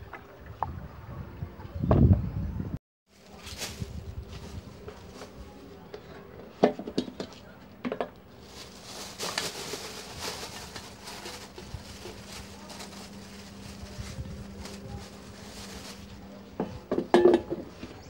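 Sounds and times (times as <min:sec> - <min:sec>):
plastic bag rustling: 0:03.1 - 0:05.8, 0:08.3 - 0:16.5
metal bowl knocking and clinking: 0:16.9 - 0:17.6.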